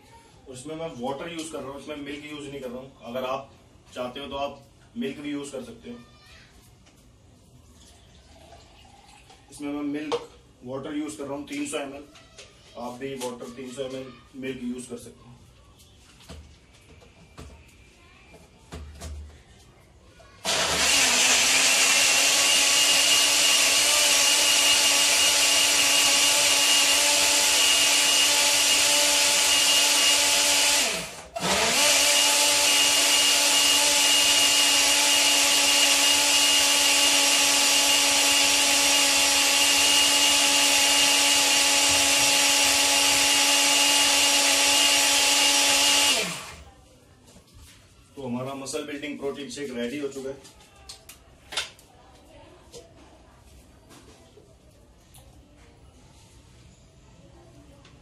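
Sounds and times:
electric blender whining: 0:20.4 - 0:46.7.

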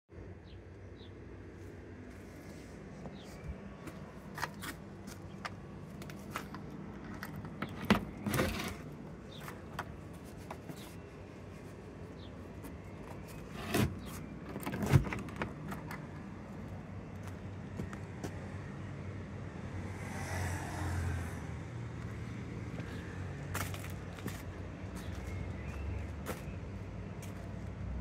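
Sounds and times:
metal latch clicking: 0:13.6 - 0:16.3.

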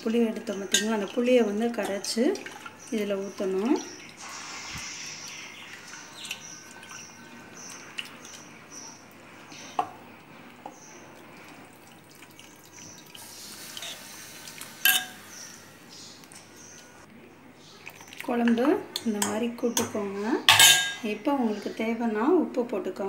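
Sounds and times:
wet squelching and sloshing: 0:00.0 - 0:09.6, 0:10.2 - 0:14.8.

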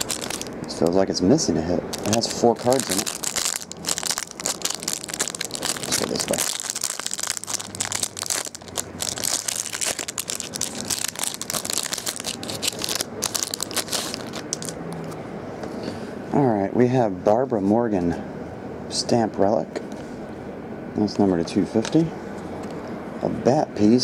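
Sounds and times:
plastic wrapper crinkling: 0:00.0 - 0:00.9, 0:01.9 - 0:15.1.

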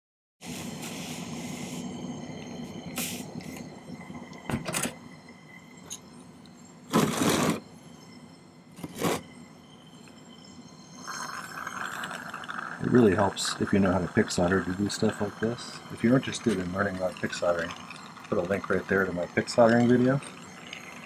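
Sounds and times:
soldering torch flame hissing: 0:00.4 - 0:03.7
low steady hum: 0:00.5 - 0:21.0.

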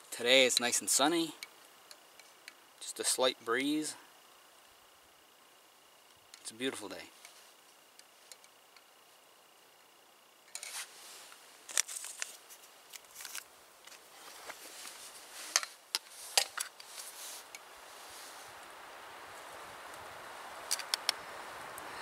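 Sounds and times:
camp cookware clicking and scraping: 0:13.0 - 0:17.6
clothing rustling: 0:14.0 - 0:18.5.

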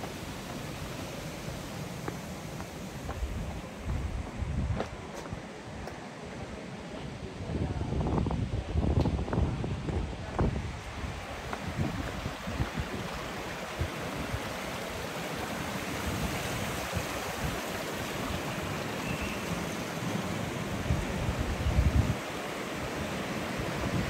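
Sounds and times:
water rushing in stone channel: 0:00.0 - 0:05.1, 0:09.8 - 0:24.0
wind buffeting microphone: 0:03.0 - 0:05.8, 0:07.2 - 0:14.6, 0:20.6 - 0:23.0.

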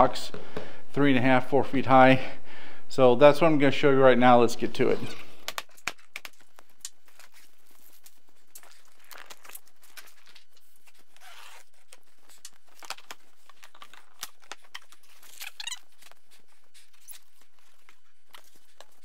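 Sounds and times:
plastic wrapping crackle: 0:05.4 - 0:19.0
cardboard rustling and scraping: 0:06.0 - 0:19.0.

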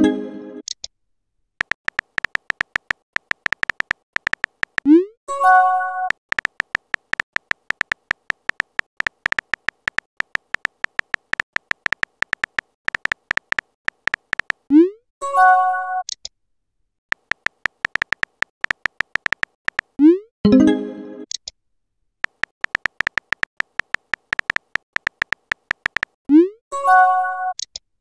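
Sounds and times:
synthetic keyboard typing clicks: 0:01.6 - 0:05.1, 0:06.0 - 0:14.8, 0:17.1 - 0:20.2, 0:22.2 - 0:26.5.

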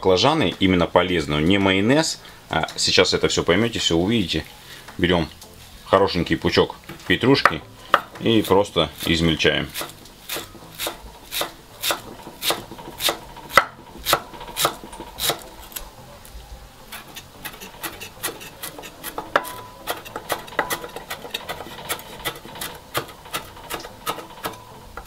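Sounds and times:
cleaver chopping on wooden board: 0:07.4 - 0:08.2, 0:09.7 - 0:15.5.

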